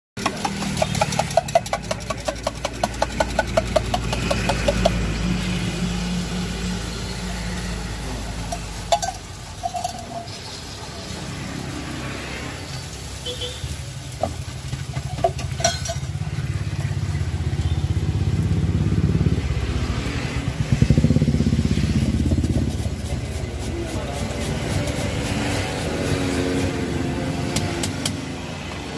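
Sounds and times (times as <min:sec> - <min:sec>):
quick regular tapping: 0:00.2 - 0:05.0
passing vehicles rumbling: 0:00.2 - 0:28.9
egg sizzling in a pan: 0:00.4 - 0:18.9.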